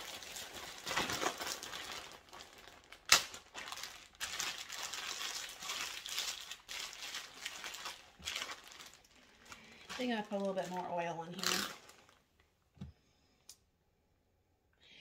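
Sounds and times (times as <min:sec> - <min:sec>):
plastic bag crinkling and squishing: 0:00.0 - 0:12.5.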